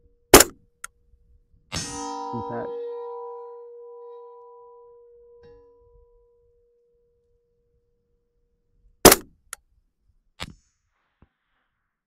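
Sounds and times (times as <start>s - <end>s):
suppressed rifle shot: 0.3s - 0.6s, 9.0s - 9.3s
steel target ringing: 1.7s - 7.1s.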